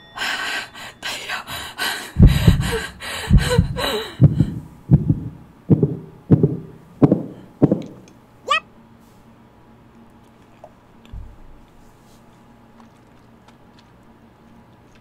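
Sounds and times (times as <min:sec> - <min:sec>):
heartbeat thumps: 0:02.1 - 0:08.1.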